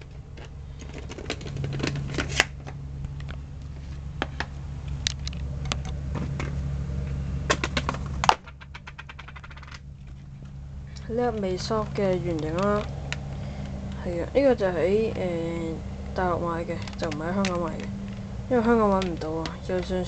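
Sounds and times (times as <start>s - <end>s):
plastic case clicking and clattering: 0.0s - 2.8s, 7.5s - 10.2s.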